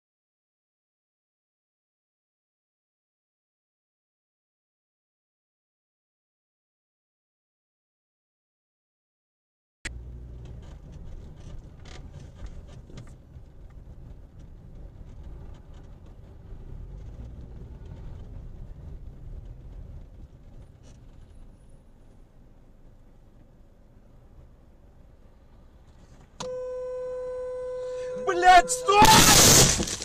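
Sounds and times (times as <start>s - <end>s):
car engine and road noise: 9.9s - 30.0s.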